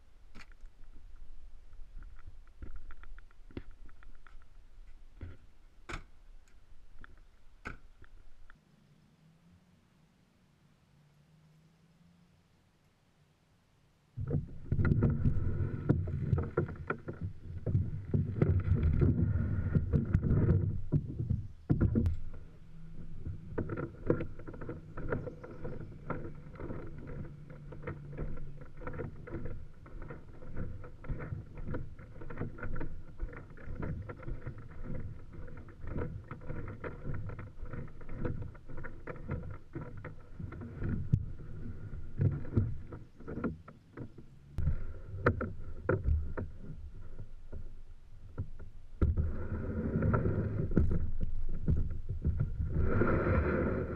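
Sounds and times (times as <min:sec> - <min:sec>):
kayak hull dragged over ground: 0:14.2 - 0:53.9.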